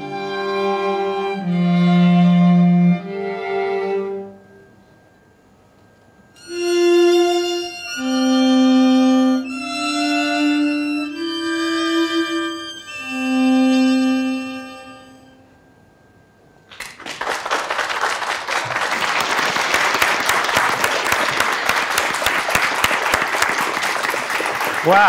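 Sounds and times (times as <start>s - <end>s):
string quartet playing held chords: 0.0s - 5.0s, 6.4s - 15.7s.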